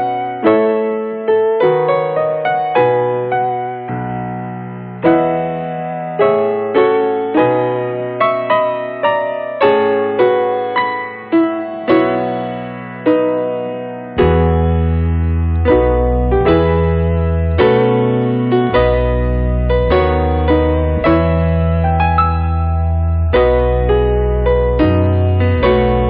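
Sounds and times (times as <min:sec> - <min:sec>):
slow piano melody: 0:00.0 - 0:26.0
held low bass notes: 0:14.2 - 0:17.9, 0:18.6 - 0:26.0.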